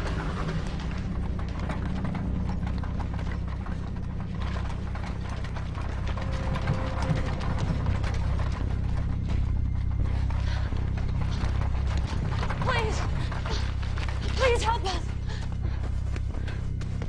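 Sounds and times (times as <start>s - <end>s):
carriage wheels rattling and creaking: 0.0s - 17.0s
hooves clip-clopping: 0.0s - 17.0s.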